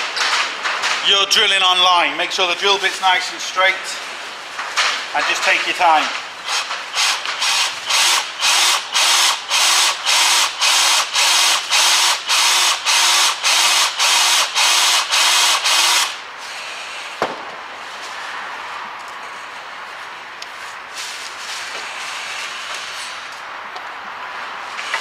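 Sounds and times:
power drill boring into metal: 0:06.5 - 0:16.2.

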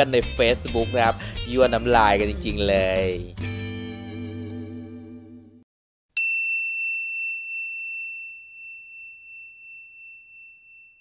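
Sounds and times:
guitar background music: 0:00.0 - 0:05.6
bright bell ding: 0:06.2 - 0:11.0.

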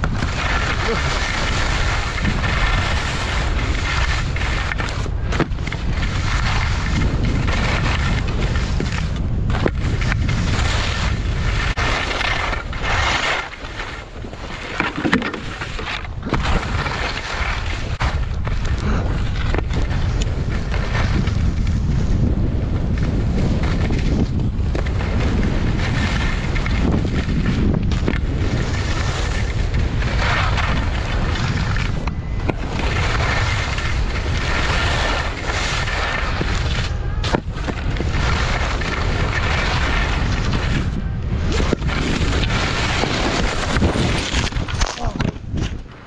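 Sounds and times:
skis scraping over snow: 0:00.0 - 0:46.0
wind buffeting microphone: 0:00.0 - 0:46.0.

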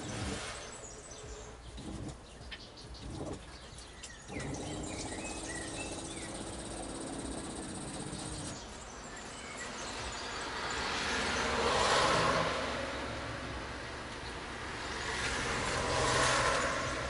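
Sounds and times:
water pump humming: 0:00.0 - 0:00.8, 0:04.3 - 0:08.6
birds chirping: 0:00.0 - 0:10.8.

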